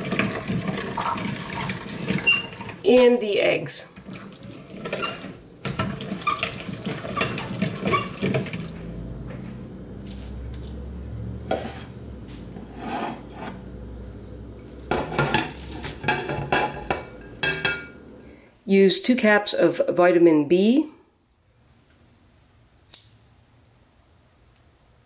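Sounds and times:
squelching and scraping: 0:04.0 - 0:10.8, 0:11.4 - 0:13.7
spatula scraping a plate: 0:04.8 - 0:08.6, 0:11.4 - 0:12.0, 0:12.6 - 0:13.6, 0:14.9 - 0:17.7.

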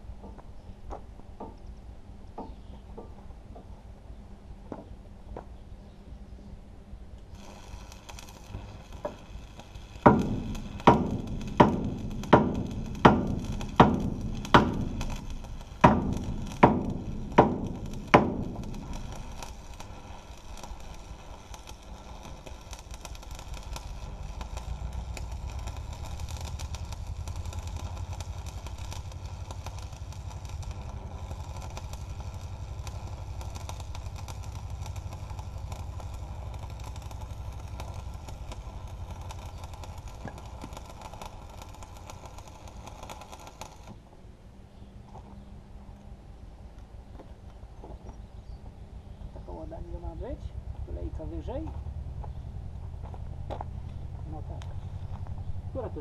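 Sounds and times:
low hum: 0:00.0 - 0:56.0
electric arc welding crackle: 0:07.3 - 0:44.0, 0:52.9 - 0:56.0
sharp knocks: 0:10.1 - 0:15.1.

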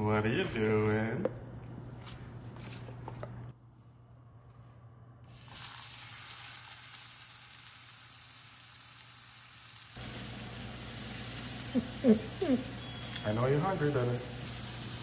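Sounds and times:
steak sizzling in grill pan: 0:05.4 - 0:15.0.

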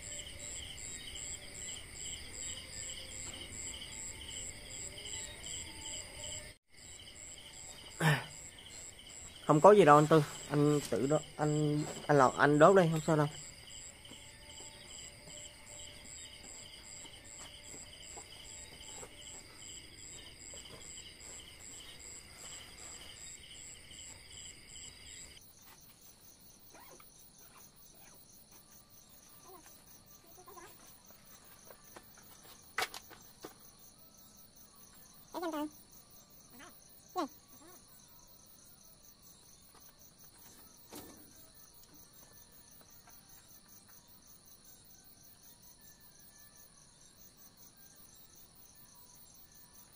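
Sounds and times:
crickets chirping: 0:00.0 - 0:49.9.

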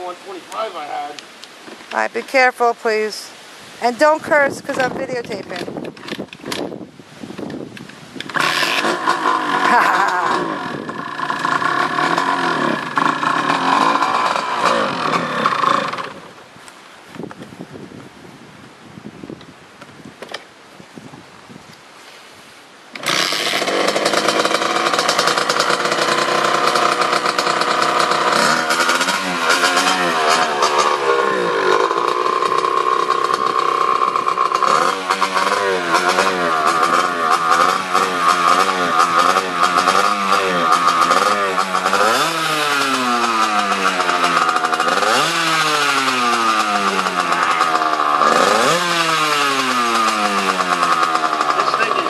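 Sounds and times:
dirt bike engine revving: 0:08.3 - 0:16.4, 0:23.0 - 0:52.0.

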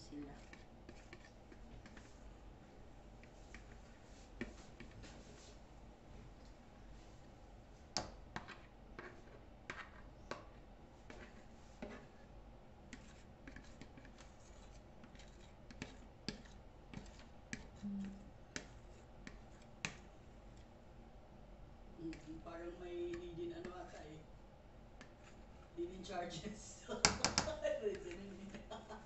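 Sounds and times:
fork scraping plastic bowl: 0:00.2 - 0:02.2, 0:08.4 - 0:12.2, 0:12.9 - 0:20.0.

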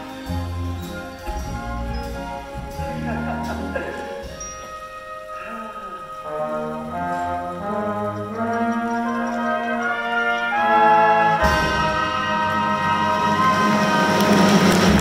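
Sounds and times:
orchestral brass music: 0:00.0 - 0:15.0
crowd cheering and applauding: 0:10.2 - 0:15.0.

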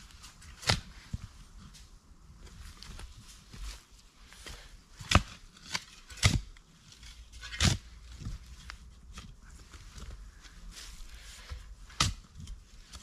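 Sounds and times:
shovel digging into soil: 0:05.0 - 0:08.0.

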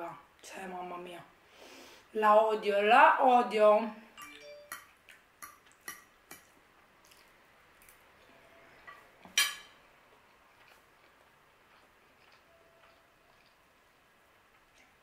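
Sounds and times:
fork clicking on plate: 0:04.2 - 0:06.5.

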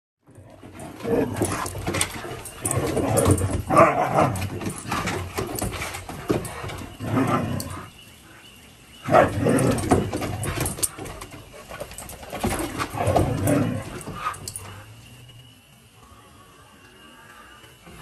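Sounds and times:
dogs growling and yowling: 0:00.3 - 0:08.0, 0:09.0 - 0:15.1.

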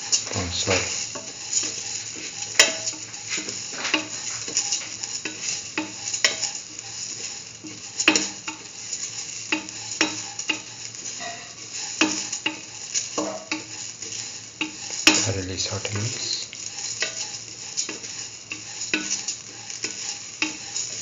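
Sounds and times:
soft sizzle: 0:00.0 - 0:21.0
spatula scraping metal pan: 0:16.2 - 0:21.0.

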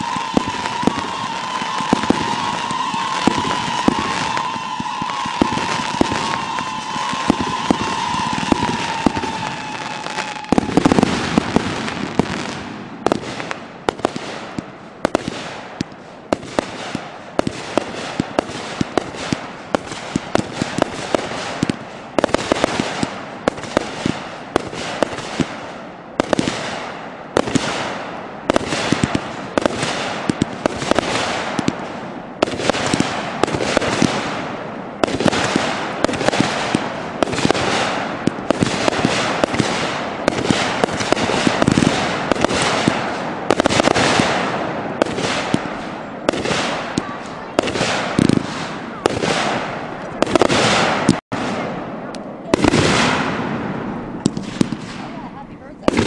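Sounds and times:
falling firework whistle: 0:00.0 - 0:13.2
hissing and crackling fireworks: 0:00.0 - 0:56.0
firework launch thumps and bangs: 0:35.0 - 0:51.6.

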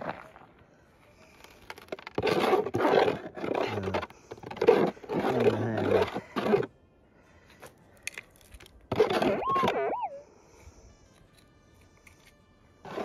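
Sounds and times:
metal detector wavering tones: 0:09.2 - 0:10.2.

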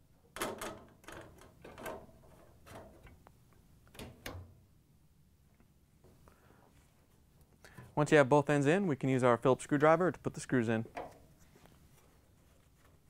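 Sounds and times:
metal clicks and knocks: 0:00.4 - 0:03.2.

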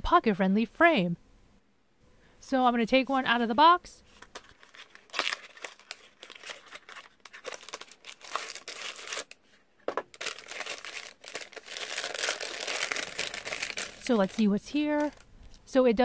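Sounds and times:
cardboard box opening: 0:04.2 - 0:09.4
plastic bag crinkling: 0:04.2 - 0:15.6.

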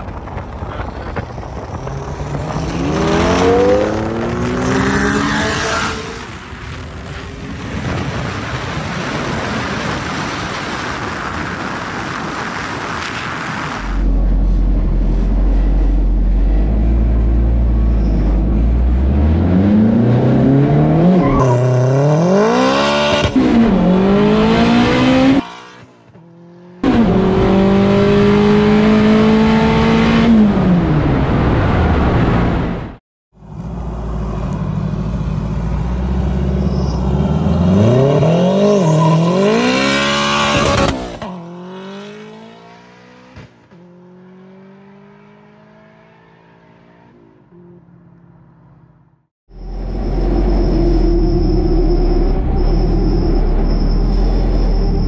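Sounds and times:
rushing wind: 0:00.0 - 0:26.2
road noise from a car: 0:00.0 - 0:55.0.

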